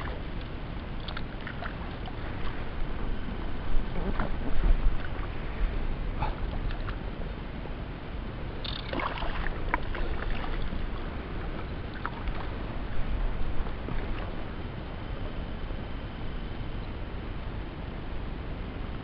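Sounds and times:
water lapping against inflatable tubes: 0.0s - 7.0s, 8.6s - 15.4s
wind rumbling on microphone: 0.0s - 19.0s.

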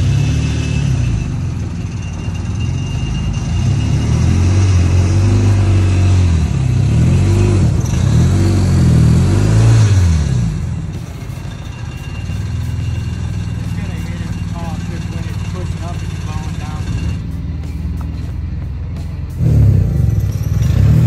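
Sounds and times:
car engine revving: 0.0s - 1.9s, 3.3s - 21.0s.

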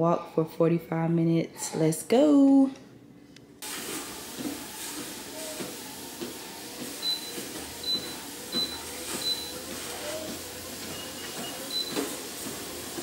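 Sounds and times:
footsteps on treadmill belt: 3.6s - 13.0s
treadmill motor hum: 3.6s - 13.0s.

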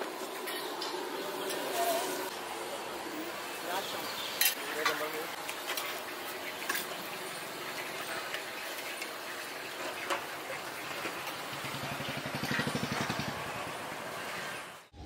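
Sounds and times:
street noise: 0.0s - 15.0s
steel utensils clinking: 4.4s - 7.0s.

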